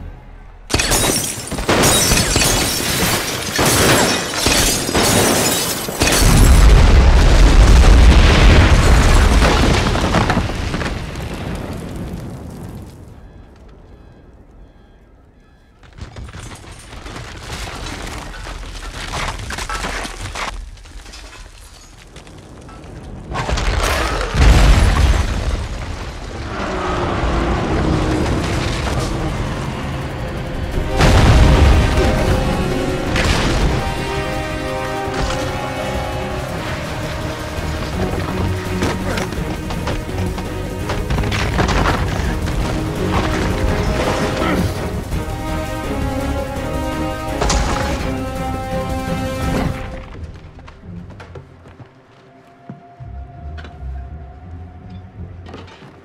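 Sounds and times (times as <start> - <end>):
glass shattering: 0.7 - 6.8
falling debris: 0.7 - 13.1, 15.8 - 50.7
bomb explosion with deep rumble: 6.2 - 13.1, 23.2 - 29.8, 30.6 - 34.2
deep boom: 30.8 - 34.4.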